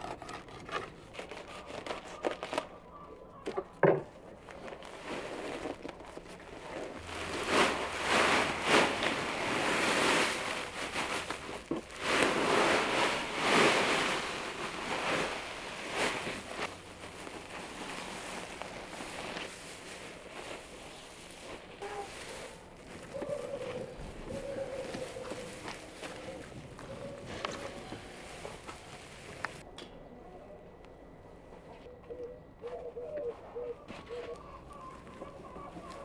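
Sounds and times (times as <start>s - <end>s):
hands mixing soil rustling: 4.1s - 29.7s, 33.2s - 36.0s
soil pouring: 4.7s - 23.1s.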